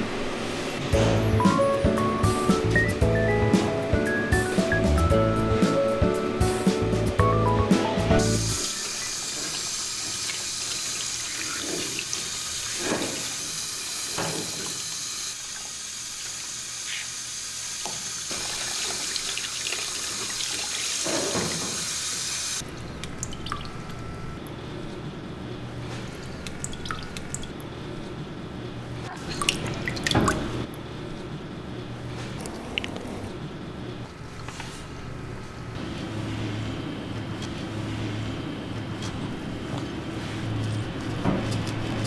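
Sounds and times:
shower spray hissing: 0:08.2 - 0:22.6
water dripping in tub: 0:23.0 - 0:24.1, 0:26.2 - 0:27.6, 0:29.2 - 0:30.5.

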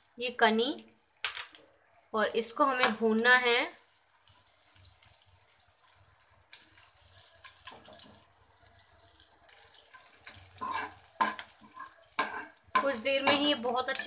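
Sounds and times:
gum frying in ghee: 0:00.0 - 0:14.0
steel ladle scraping a pan: 0:09.5 - 0:14.0.

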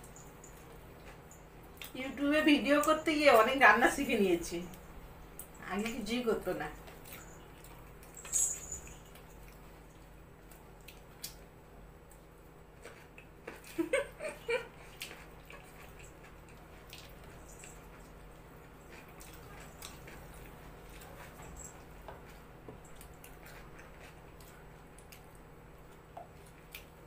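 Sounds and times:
chewing and lip noises: 0:00.0 - 0:02.0, 0:06.8 - 0:13.8, 0:14.6 - 0:27.0.

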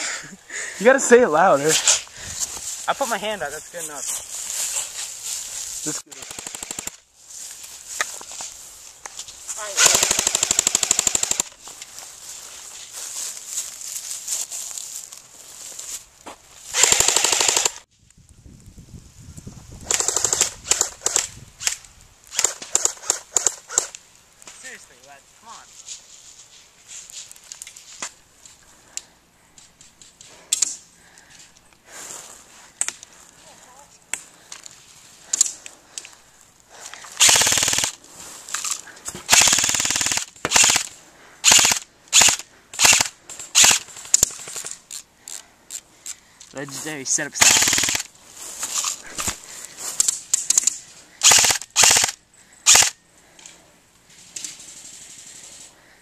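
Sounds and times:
airsoft gun bursts: 0:06.1 - 0:07.0, 0:09.6 - 0:11.5, 0:16.7 - 0:17.8, 0:19.8 - 0:21.3, 0:22.3 - 0:23.9, 0:37.2 - 0:38.0, 0:39.3 - 0:44.2, 0:47.4 - 0:48.1, 0:51.2 - 0:53.0
airsoft single shots: 0:39.3 - 0:43.8, 0:51.2 - 0:52.9.

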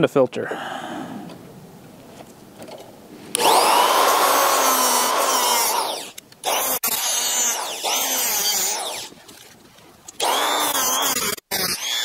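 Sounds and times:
cutoff tool grinding metal: 0:03.3 - 0:09.2, 0:10.2 - 0:12.0.

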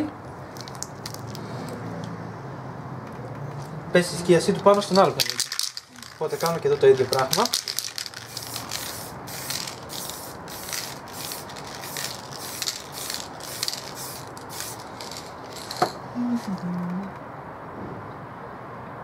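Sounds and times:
aerosol spray can hissing: 0:06.2 - 0:15.8.

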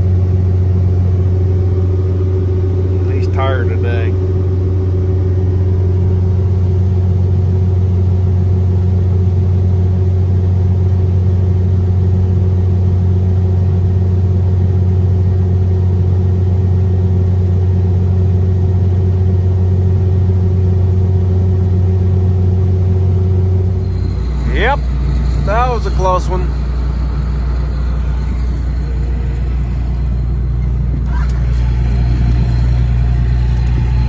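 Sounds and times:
combine harvester drone from cab: 0:00.0 - 0:34.0.

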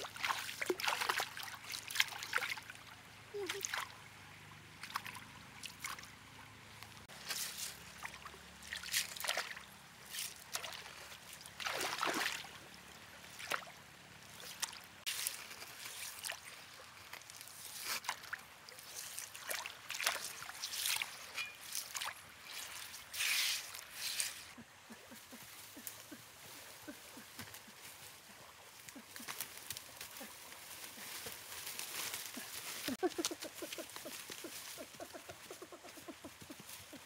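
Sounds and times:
scooping at gravel: 0:07.1 - 0:07.9, 0:20.2 - 0:24.6.

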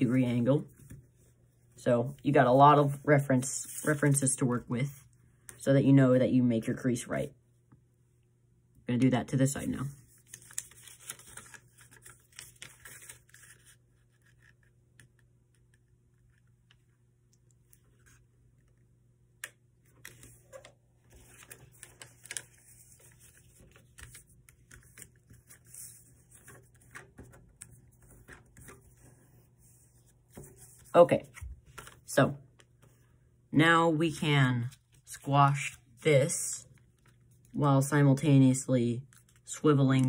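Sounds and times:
paper being folded: 0:10.0 - 0:17.0, 0:19.9 - 0:33.0.

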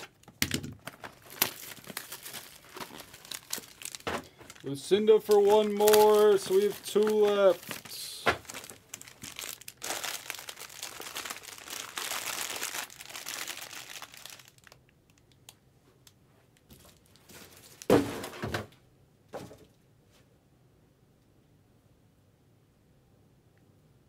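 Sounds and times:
packaging crinkling and tearing: 0:00.0 - 0:15.6, 0:16.8 - 0:18.0.

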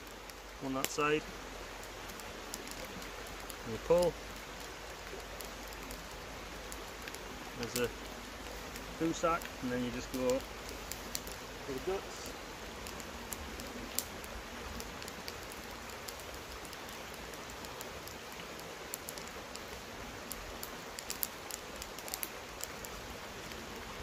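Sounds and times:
light ticks and clicks: 0:01.8 - 0:23.9.

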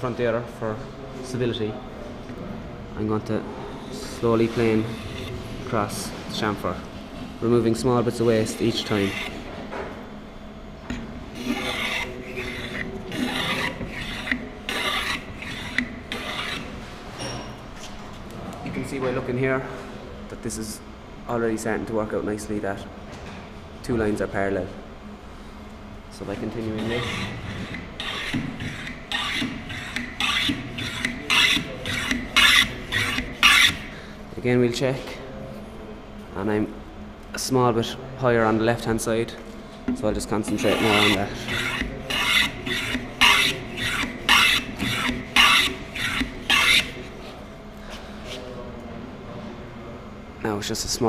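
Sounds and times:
hand plane rasping on wood: 0:04.6 - 0:05.3, 0:08.6 - 0:09.4, 0:11.4 - 0:16.8, 0:26.7 - 0:33.9, 0:40.4 - 0:47.1.

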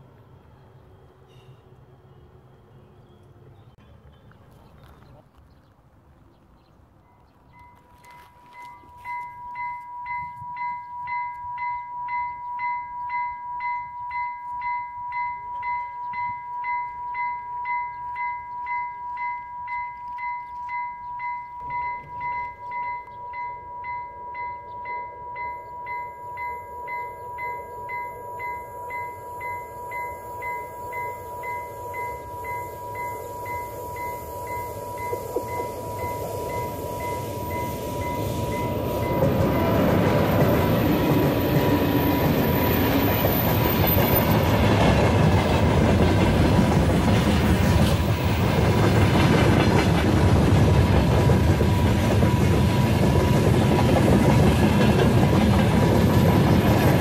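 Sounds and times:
rushing noise of train: 0:00.0 - 0:04.0, 0:24.2 - 0:57.0
level crossing bell ringing: 0:07.6 - 0:43.6.

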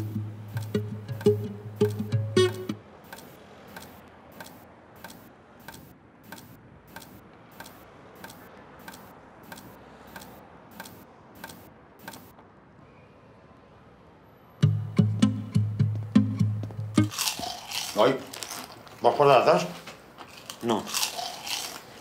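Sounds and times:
clock ticking: 0:00.0 - 0:12.3.

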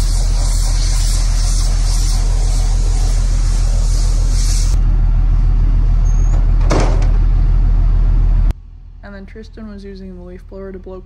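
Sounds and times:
compressed air hissing: 0:00.0 - 0:04.8.

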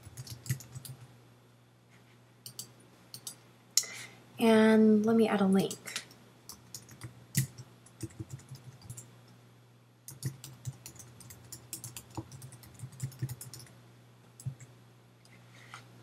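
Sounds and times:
keyboard typing: 0:00.0 - 0:01.1, 0:02.4 - 0:03.4, 0:06.5 - 0:09.1, 0:10.1 - 0:13.7, 0:14.4 - 0:14.7.

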